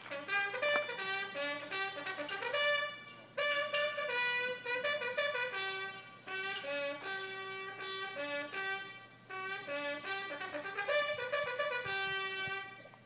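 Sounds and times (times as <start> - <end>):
bugle call on a brass horn: 0.0 - 13.0.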